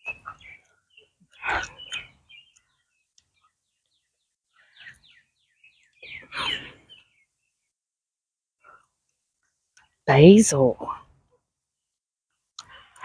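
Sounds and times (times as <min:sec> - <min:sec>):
birds chirping: 0:00.0 - 0:07.8.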